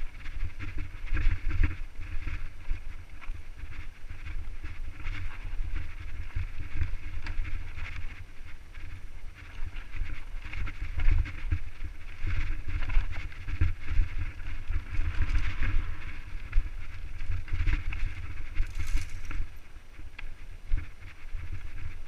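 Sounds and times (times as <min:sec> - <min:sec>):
wind buffeting microphone: 0:00.0 - 0:22.0
bike clicks and rattles: 0:00.1 - 0:22.0
tyres crunching over dirt: 0:18.6 - 0:19.6.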